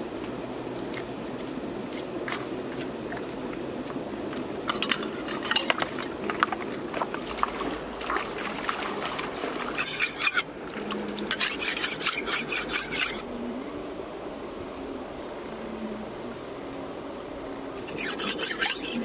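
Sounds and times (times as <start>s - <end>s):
stream water rushing: 0.0s - 19.0s
water splashing: 2.2s - 13.2s.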